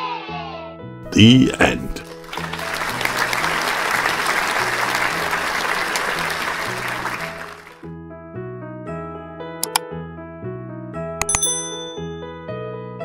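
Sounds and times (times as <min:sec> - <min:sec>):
crowd applause: 0:01.1 - 0:07.8.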